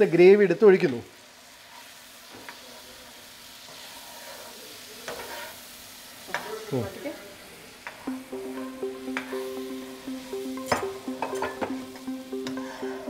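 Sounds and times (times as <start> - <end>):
juices sizzling in a pan: 0.0 - 13.0
background music: 8.0 - 13.0.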